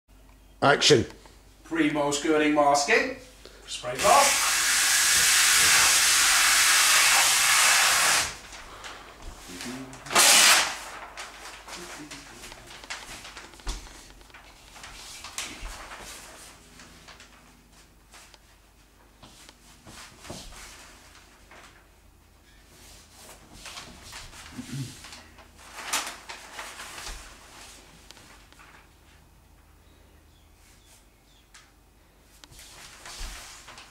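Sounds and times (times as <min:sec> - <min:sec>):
paper strip rustling and crackling: 0:07.1 - 0:18.6, 0:19.2 - 0:21.9, 0:22.8 - 0:29.2, 0:32.5 - 0:33.9.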